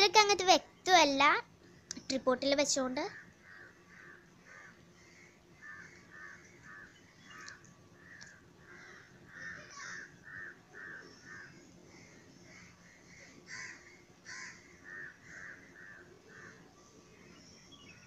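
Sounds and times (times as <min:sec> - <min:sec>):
crow cawing: 0:03.1 - 0:16.6.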